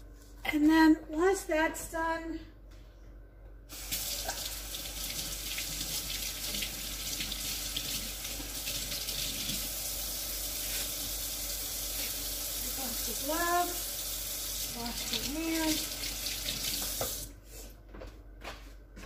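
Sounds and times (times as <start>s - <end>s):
tap running into sink: 16.4s - 17.3s.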